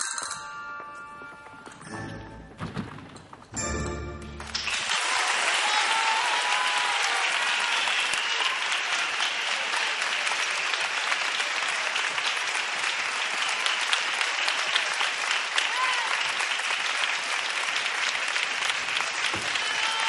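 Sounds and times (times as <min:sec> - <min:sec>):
studio audience applauding: 0:04.2 - 0:20.0.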